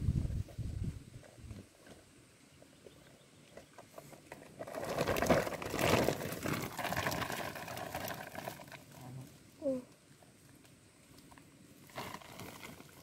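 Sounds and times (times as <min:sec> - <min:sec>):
plastic sack rustling: 0:04.5 - 0:09.0, 0:11.8 - 0:13.0.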